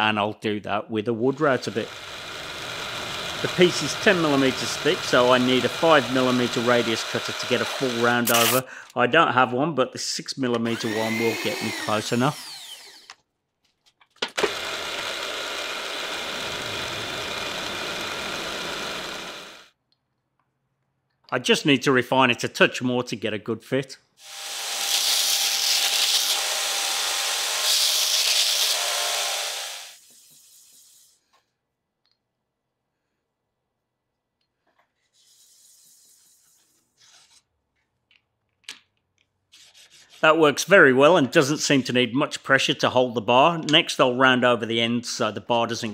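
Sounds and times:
milling machine cutting with high whine: 1.6s - 8.6s, 10.7s - 13.1s, 14.5s - 19.6s.

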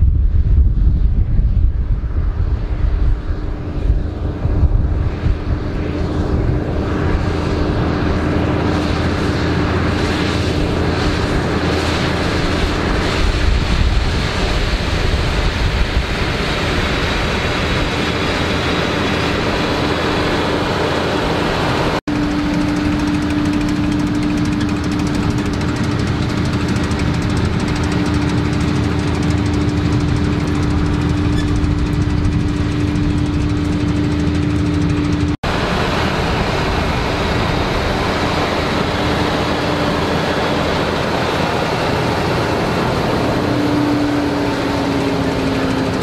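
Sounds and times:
tractor engine running under load: 16.5s - 46.0s.

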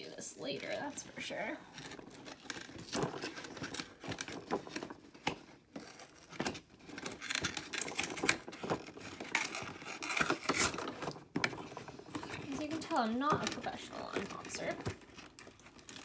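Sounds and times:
cardboard box scratching and tearing: 5.7s - 16.0s.

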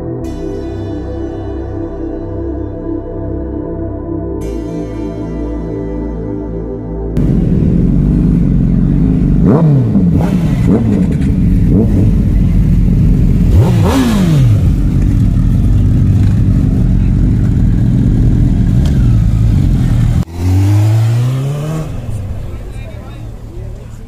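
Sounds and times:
motorcycle engine throttle blips: 7.2s - 22.7s.

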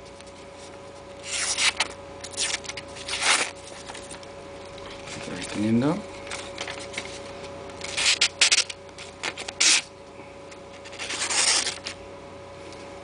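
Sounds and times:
knife slicing paper: 1.2s - 4.1s, 7.8s - 9.9s, 10.8s - 12.0s.

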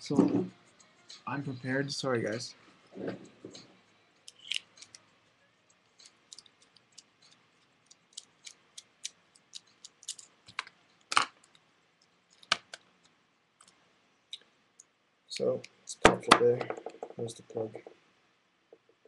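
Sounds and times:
screwdriver metal clicks and scrapes: 4.3s - 5.0s.

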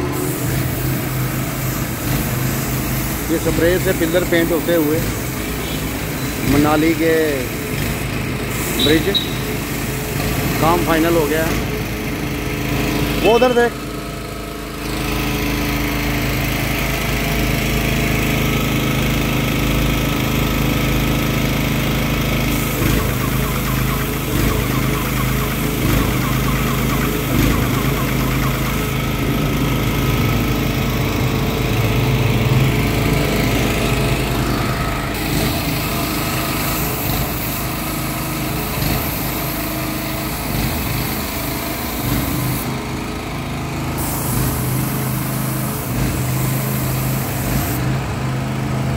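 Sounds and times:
spray gun hissing: 0.0s - 11.3s, 22.4s - 30.7s, 33.3s - 42.8s, 43.8s - 48.0s
generator running: 0.0s - 48.9s.

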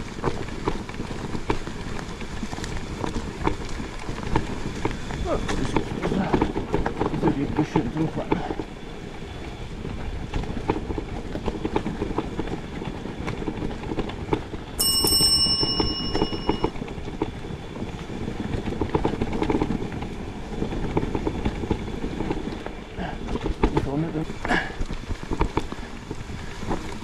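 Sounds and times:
bike tyres rumbling on trail: 0.0s - 27.0s
bike rattling knocks: 13.3s - 17.3s
bicycle bell ringing: 14.8s - 16.8s.

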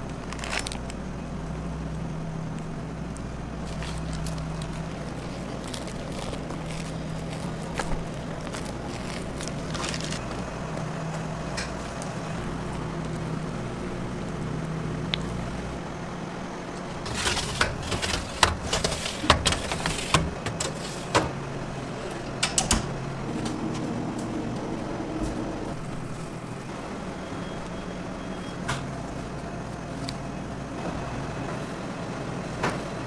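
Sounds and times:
low machine hum: 0.0s - 33.0s
trays and tools clattering: 17.0s - 21.4s.

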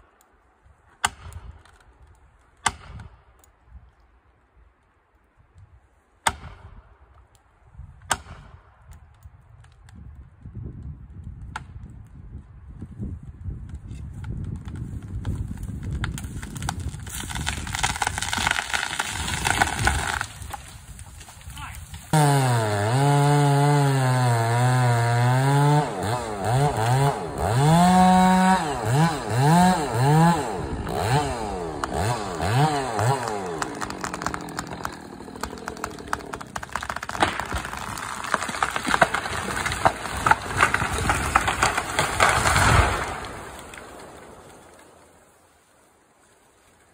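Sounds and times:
wood cracking and snapping: 13.6s - 45.2s
tree crashing through branches: 14.6s - 24.7s, 25.4s - 45.5s.

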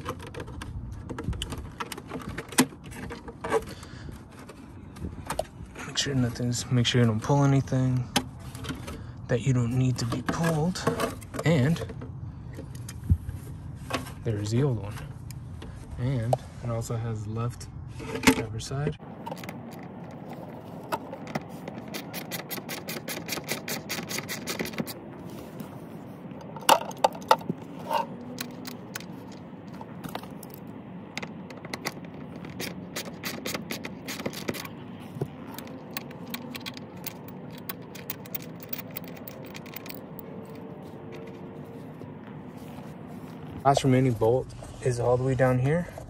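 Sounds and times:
socket ratchet clicking: 21.8s - 25.0s, 31.2s - 34.8s, 35.4s - 40.4s.

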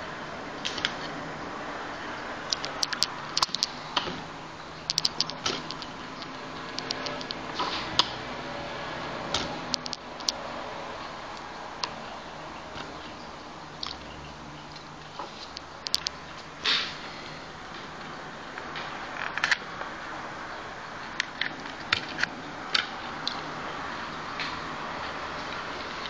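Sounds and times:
sharp clicks and small knocks: 2.5s - 8.2s, 9.3s - 10.4s, 14.7s - 16.5s.

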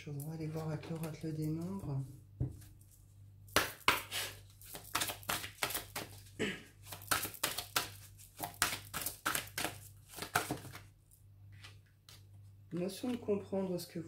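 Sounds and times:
low steady hum: 0.0s - 3.6s
cards being shuffled: 3.6s - 10.9s.

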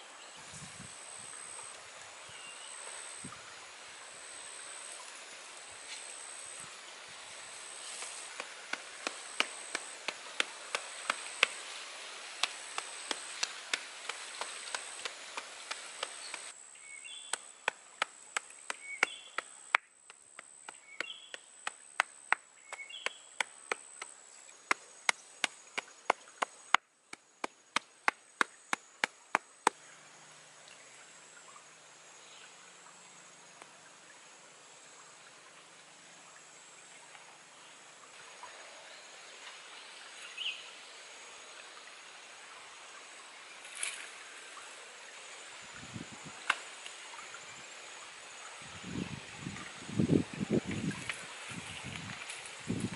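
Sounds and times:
high insect buzz: 0.0s - 35.0s.

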